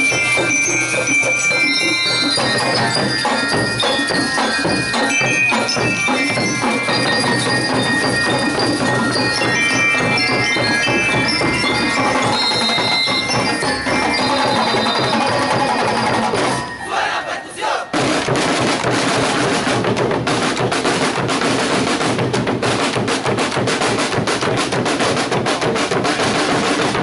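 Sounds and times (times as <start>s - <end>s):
snare and bass drums: 0.0s - 16.7s, 17.9s - 27.0s
bell lyre melody: 0.0s - 18.7s.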